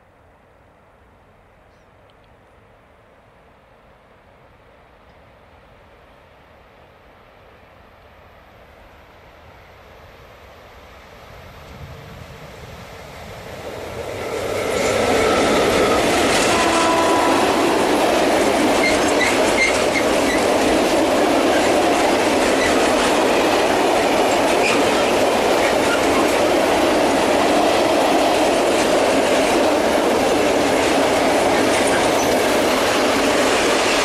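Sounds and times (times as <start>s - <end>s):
electric locomotive passing: 5.5s - 34.0s
wagon wheels rumbling on rail: 11.8s - 34.0s.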